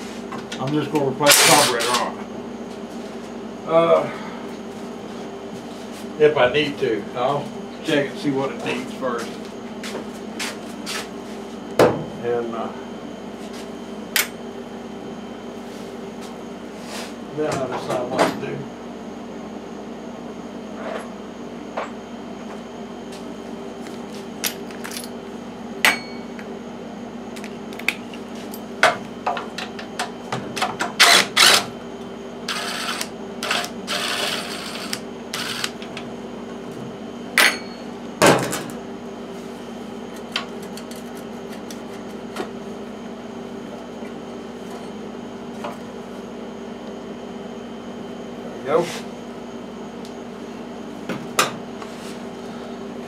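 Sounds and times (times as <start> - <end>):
steady hum: 0.0 - 53.0
cordless driver whirring: 31.0 - 31.7, 32.5 - 35.8.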